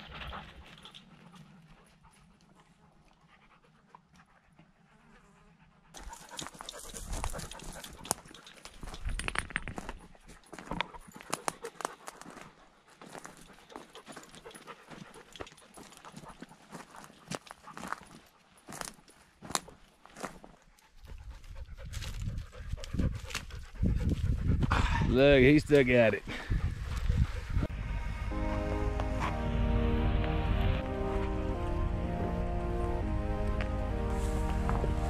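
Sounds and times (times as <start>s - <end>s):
dogs panting: 0.0s - 9.0s, 9.8s - 18.7s, 20.2s - 27.8s
footsteps crunching on gravel: 10.5s - 20.6s.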